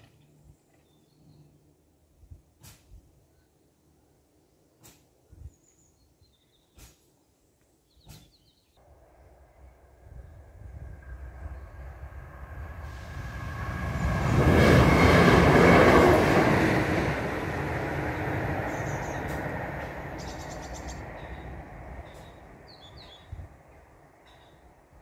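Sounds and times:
train passing rumble: 8.8 - 25.0.

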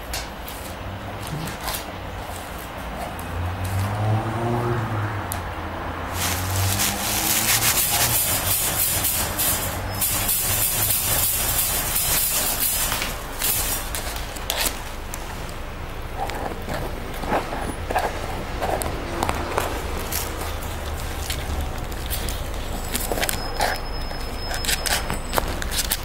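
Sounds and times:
plastic sheeting crinkling: 6.1 - 26.0.

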